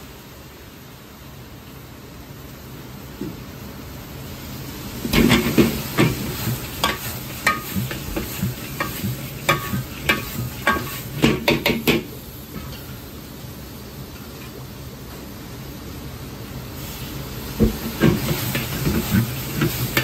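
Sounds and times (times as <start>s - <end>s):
chicken sizzling in sauce: 4.0s - 20.0s
gas burner rushing: 4.5s - 13.0s, 16.6s - 20.0s
metal ladle scraping a wok: 5.1s - 11.4s, 17.8s - 20.0s.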